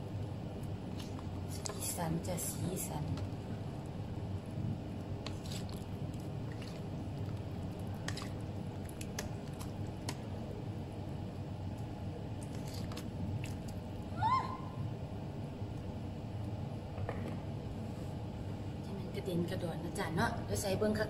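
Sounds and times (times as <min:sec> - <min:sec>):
soup squelching and sloshing: 0:05.0 - 0:10.3, 0:12.3 - 0:14.0.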